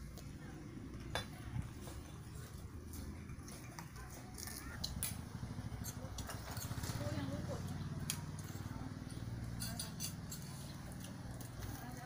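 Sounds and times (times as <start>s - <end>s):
cutlery and dishes clinking: 9.4s - 12.0s.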